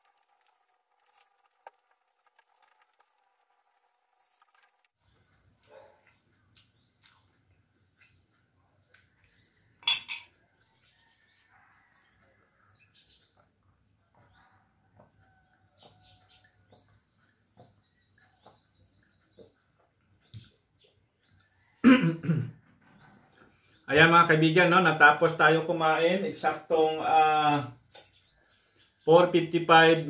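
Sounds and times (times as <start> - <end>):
small birds chirping: 4.1 - 9.8, 10.4 - 24.8, 25.5 - 30.0
metal spoon clattering on glass mug: 9.8 - 10.4.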